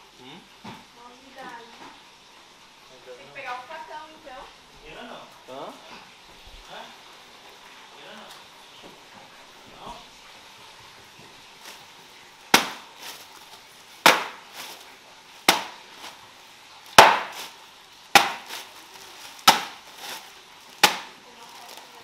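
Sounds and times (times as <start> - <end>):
bag of ice hitting tiled floor: 12.4 - 22.0
ice rattling: 12.7 - 22.0.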